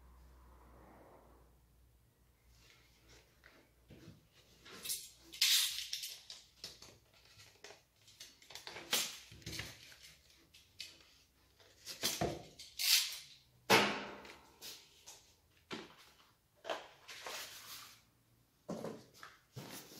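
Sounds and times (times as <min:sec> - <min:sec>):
packaging rustling and scraping: 0:16.1 - 0:18.1, 0:19.0 - 0:19.9.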